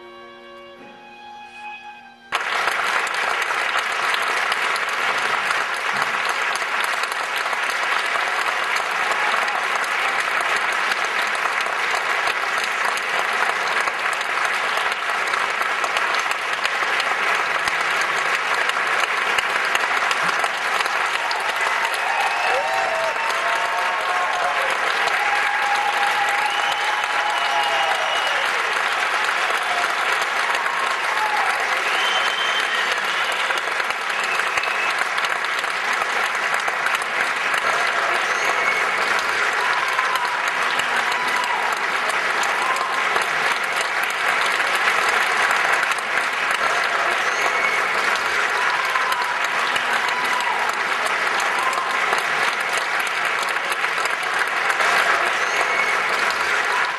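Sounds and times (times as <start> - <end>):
audience applauding: 1.3 - 56.9
audience cheers: 6.0 - 11.6, 19.7 - 56.9.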